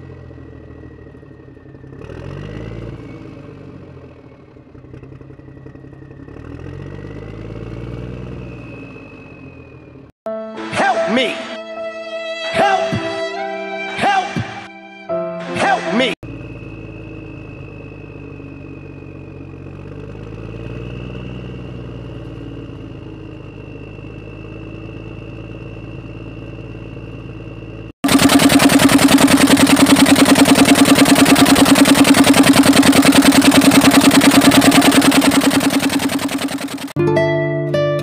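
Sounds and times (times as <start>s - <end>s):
loud pulsing engine: 0.0s - 10.1s, 16.2s - 37.0s
engine idling with high whine: 0.0s - 10.2s, 16.2s - 37.0s.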